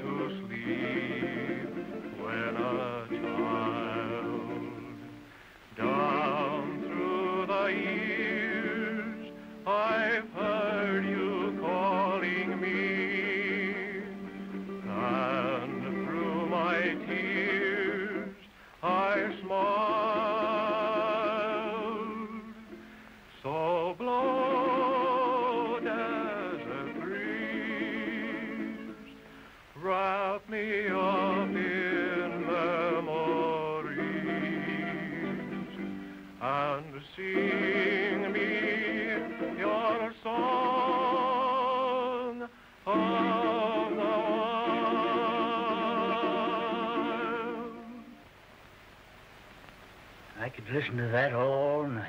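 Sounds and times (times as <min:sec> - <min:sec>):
person singing with vibrato: 0:00.0 - 0:48.3
singer breathing: 0:05.2 - 0:05.7, 0:09.3 - 0:09.6, 0:18.4 - 0:18.8, 0:22.8 - 0:23.3, 0:29.2 - 0:29.8, 0:35.8 - 0:36.4, 0:42.5 - 0:42.8.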